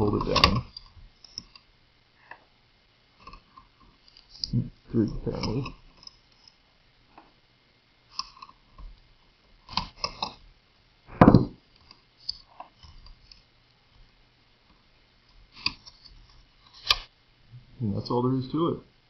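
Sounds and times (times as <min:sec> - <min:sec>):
screwdriver clicking and scraping: 0:05.2 - 0:06.6, 0:09.7 - 0:10.4
loud knock: 0:11.1 - 0:11.6.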